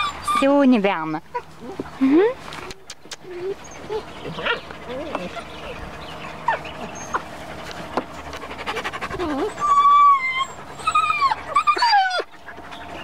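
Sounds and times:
puppies whimpering and whining: 0:00.0 - 0:13.0
puppy panting: 0:01.4 - 0:13.0.

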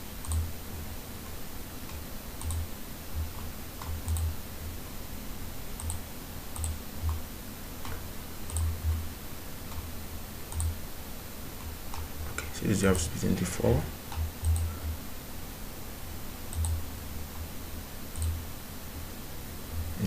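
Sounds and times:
computer mouse clicking: 0:00.2 - 0:00.5, 0:01.2 - 0:02.7, 0:03.3 - 0:04.3, 0:05.8 - 0:06.0, 0:06.6 - 0:07.2, 0:07.8 - 0:09.0, 0:09.7 - 0:09.9, 0:10.5 - 0:10.8, 0:11.6 - 0:12.5, 0:14.1 - 0:14.8, 0:16.5 - 0:16.8, 0:18.1 - 0:18.4.

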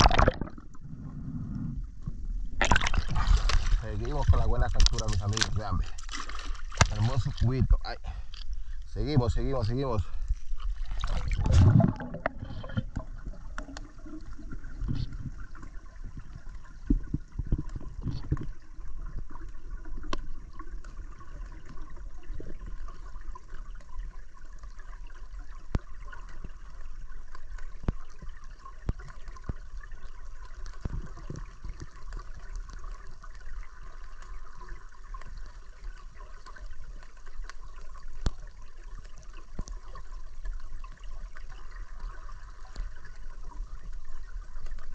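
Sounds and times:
water surging: 0:00.0 - 0:01.0, 0:02.5 - 0:08.0
muffled underwater rush: 0:00.0 - 0:44.9
small underwater clicks: 0:02.6 - 0:44.9.

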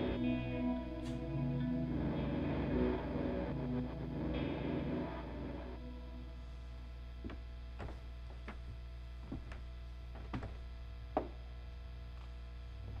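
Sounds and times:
guitar amplifier hum: 0:00.0 - 0:13.0
footsteps on wooden floor: 0:07.2 - 0:11.4.

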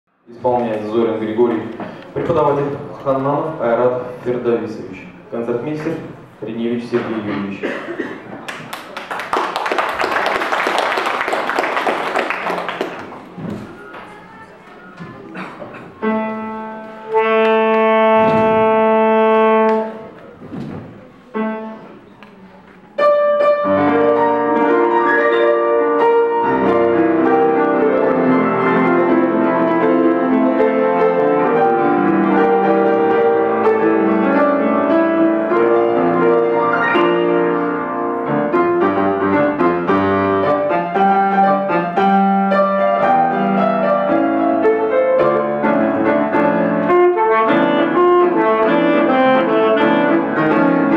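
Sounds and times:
saxophone and piano jazz tune: 0:13.5 - 0:20.4, 0:21.0 - 0:22.1, 0:22.9 - 0:50.9
alto saxophone long note: 0:16.0 - 0:20.0, 0:46.9 - 0:50.5.

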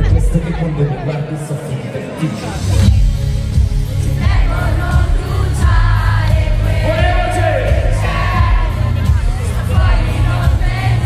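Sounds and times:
heavy bass line: 0:02.4 - 0:11.0.

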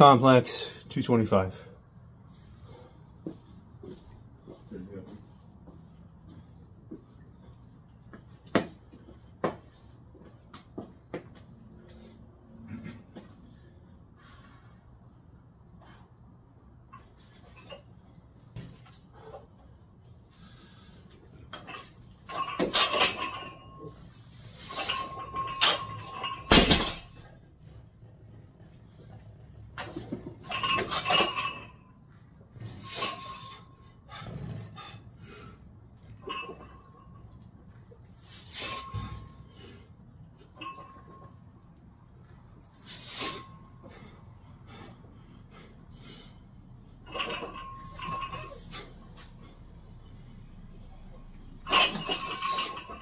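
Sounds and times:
barbell plates clanking: 0:21.5 - 0:24.0, 0:24.6 - 0:27.3, 0:29.8 - 0:31.9, 0:36.1 - 0:37.2, 0:46.9 - 0:49.3, 0:50.9 - 0:53.0
man breathing hard: 0:43.8 - 0:46.5.

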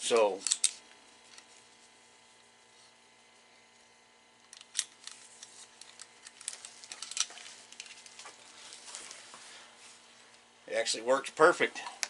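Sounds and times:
gun and sling handling clicks: 0:00.4 - 0:01.5, 0:04.5 - 0:08.2.

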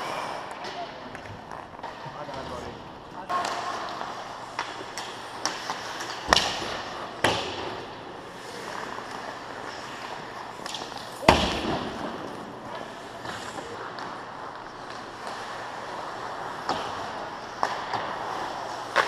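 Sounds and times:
skates scraping ice: 0:00.0 - 0:19.0
stick hitting puck: 0:03.3 - 0:07.9, 0:10.5 - 0:13.4, 0:16.5 - 0:19.0.

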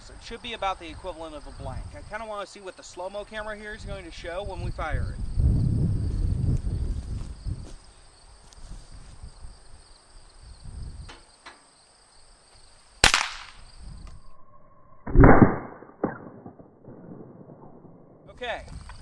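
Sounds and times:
pistol shot crack: 0:13.0 - 0:13.6, 0:15.1 - 0:17.8
slowed-down gunshot boom: 0:15.0 - 0:18.3.

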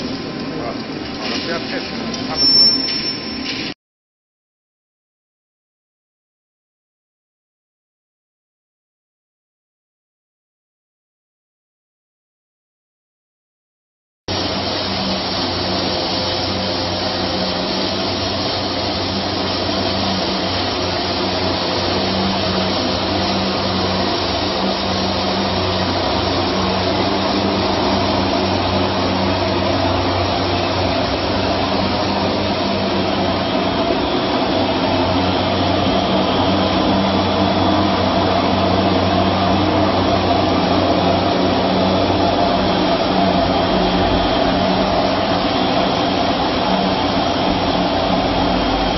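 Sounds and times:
wire drawing machine drone: 0:00.0 - 0:03.8, 0:14.3 - 0:48.9.

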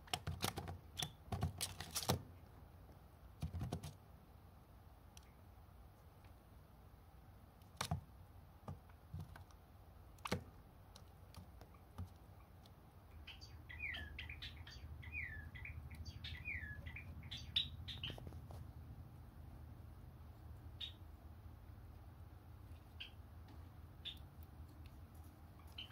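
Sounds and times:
sparrows chirping: 0:11.4 - 0:18.6, 0:20.6 - 0:21.2, 0:22.6 - 0:25.9.

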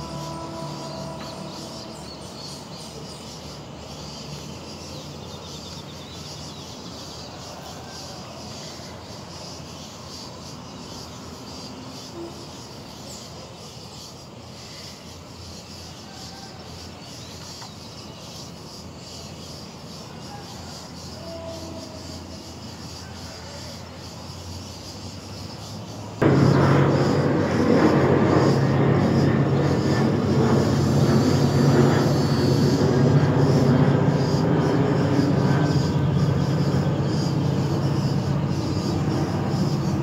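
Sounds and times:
steady low hum: 0:00.0 - 0:06.9, 0:26.2 - 0:40.0
faint pulsing high chirping: 0:00.0 - 0:07.5, 0:23.9 - 0:40.0.

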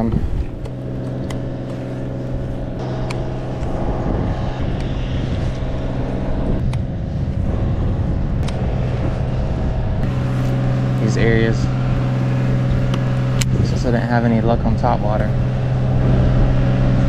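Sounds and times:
low motor hum: 0:00.0 - 0:17.0.

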